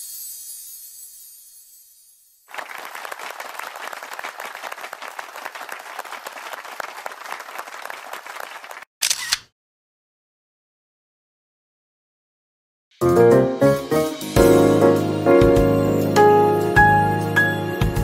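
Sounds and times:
crowd applause: 2.5s - 8.9s
background music: 13.0s - 18.0s.

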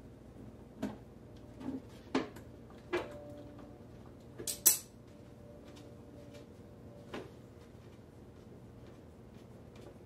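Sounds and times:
tools clicking and knocking: 4.4s - 4.9s.

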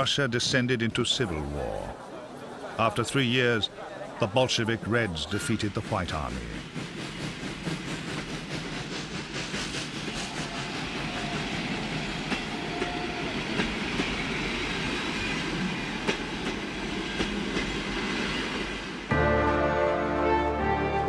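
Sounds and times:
train rumbling on rails: 3.0s - 19.1s
music: 19.1s - 21.0s.

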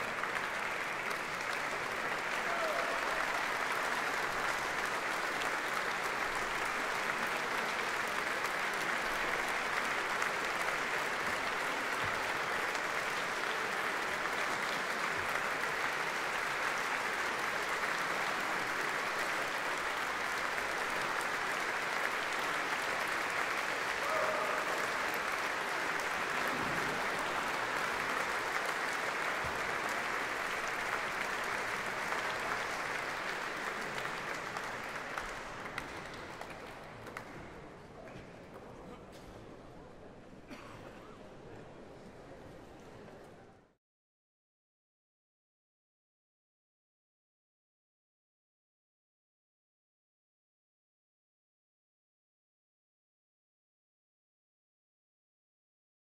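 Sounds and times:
audience applauding in a church: 0.0s - 38.8s.

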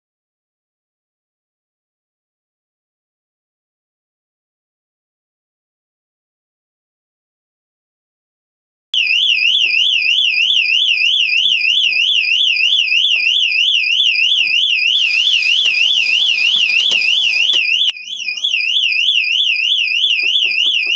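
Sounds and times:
electronic alarm siren warbling: 9.0s - 20.9s.

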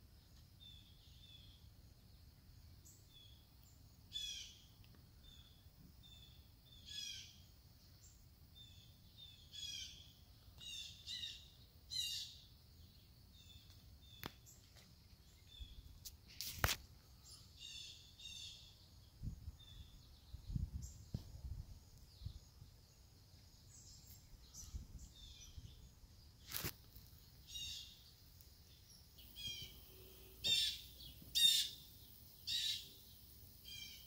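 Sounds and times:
songbirds chirping: 0.0s - 34.0s.

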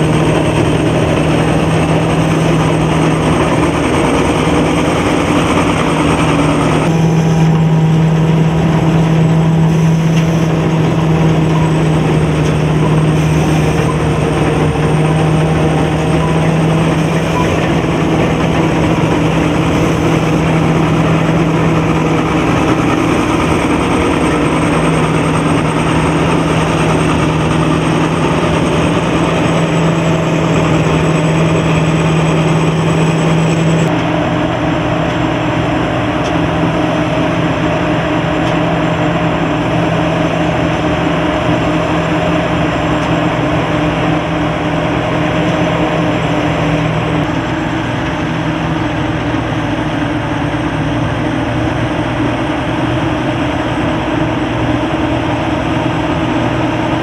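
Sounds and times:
combine harvester engine humming: 0.0s - 57.0s.

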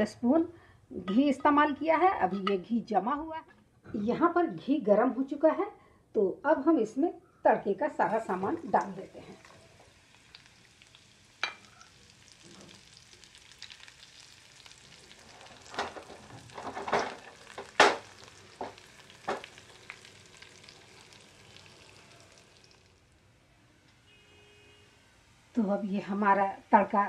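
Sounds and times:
spices sizzling in hot fat: 8.0s - 23.2s
spoon scraping and knocking pan: 15.5s - 19.6s.

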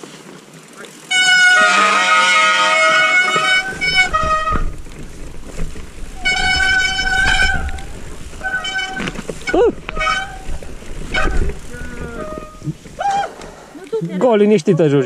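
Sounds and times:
horn-like musical chords: 1.1s - 4.9s, 6.2s - 12.7s
low rumble: 3.2s - 13.8s.

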